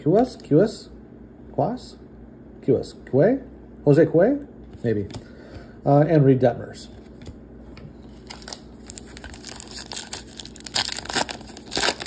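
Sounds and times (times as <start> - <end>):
wrapper tearing and crinkling: 8.1 - 12.0.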